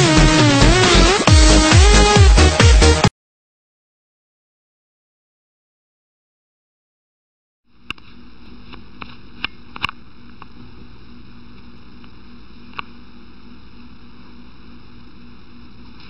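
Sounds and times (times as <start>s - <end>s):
room noise hiss and hum: 7.7s - 16.0s.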